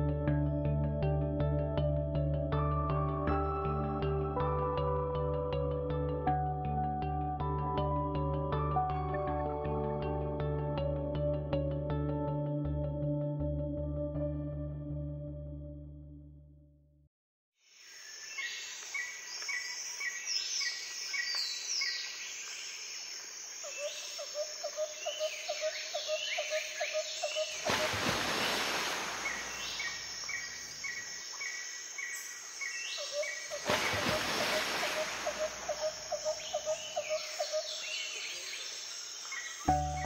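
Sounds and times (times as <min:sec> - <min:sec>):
birdsong chirps and trills: 0:23.7 - 0:27.7, 0:29.2 - 0:40.0.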